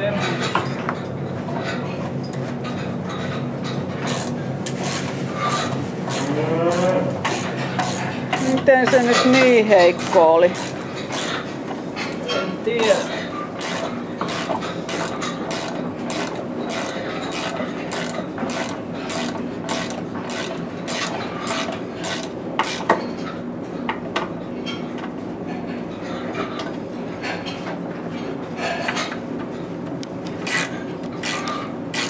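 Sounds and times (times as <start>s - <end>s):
steady hum: 1.1s - 23.6s.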